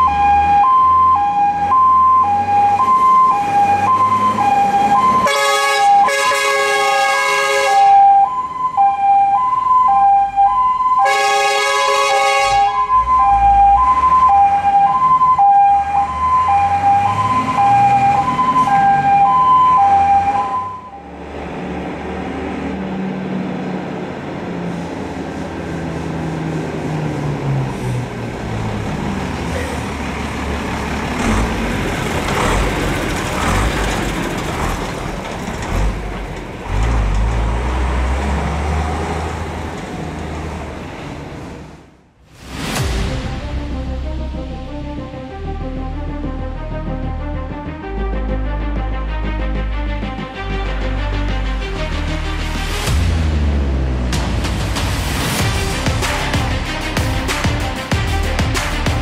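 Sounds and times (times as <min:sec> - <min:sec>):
two-tone fire engine siren: 0:00.0 - 0:21.7
diesel truck engine revving: 0:00.0 - 0:59.0.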